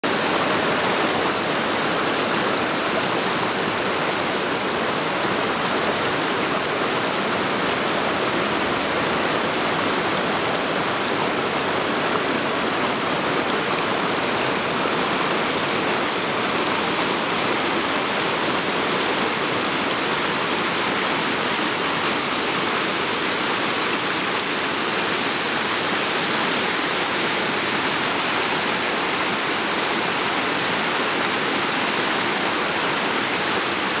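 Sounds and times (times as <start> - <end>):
river rushing over boulders: 0.0 - 34.0.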